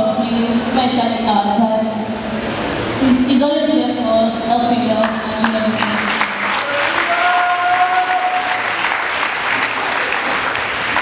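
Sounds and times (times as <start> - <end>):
crowd applauding: 5.0 - 11.0.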